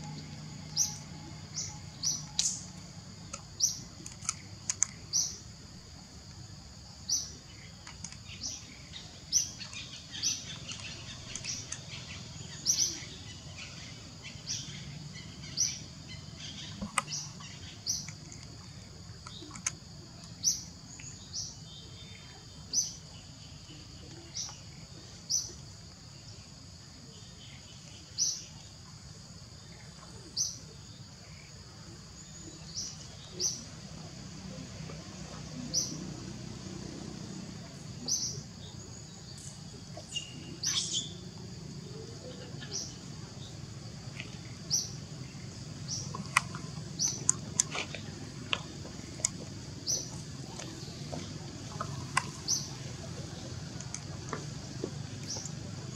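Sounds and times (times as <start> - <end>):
bird high chirp: 39.5 - 41.2.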